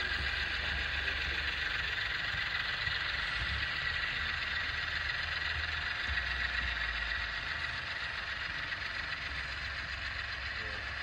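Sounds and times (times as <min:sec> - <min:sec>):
low hum: 0:00.0 - 0:11.0
model train running on track: 0:00.0 - 0:11.0.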